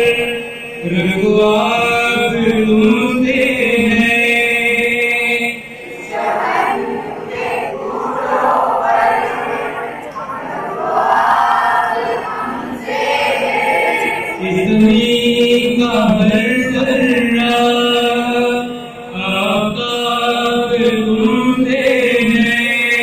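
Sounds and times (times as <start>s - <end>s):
children singing together: 5.8s - 14.9s.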